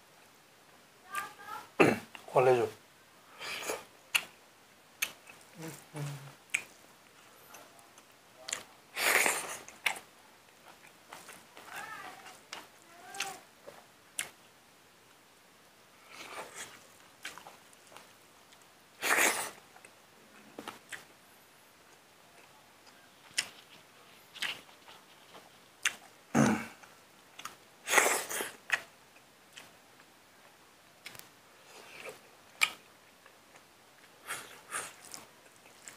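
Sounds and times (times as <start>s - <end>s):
man chewing food: 3.4s - 4.4s, 5.0s - 14.6s, 16.0s - 21.2s, 21.8s - 35.9s.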